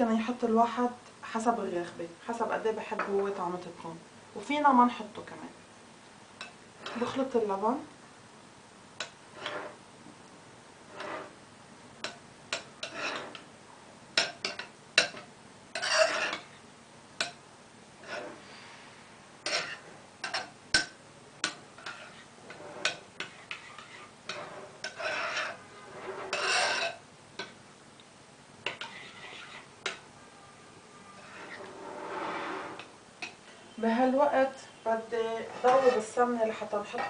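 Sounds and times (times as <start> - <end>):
spoon scraping bowl: 6.4 - 7.4, 9.0 - 9.8, 10.9 - 11.4, 12.0 - 13.5, 14.2 - 16.6, 18.0 - 18.8, 19.4 - 20.5, 21.4 - 27.6, 28.6 - 30.0, 31.1 - 33.7, 35.2 - 37.0.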